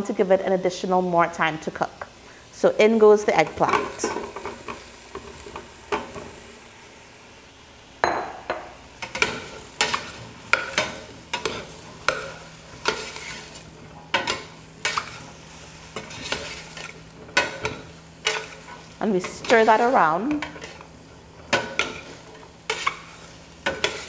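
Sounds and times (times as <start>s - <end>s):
vegetables sizzling in oil: 0.0s - 24.0s
spoon scraping metal pot: 21.5s - 24.0s.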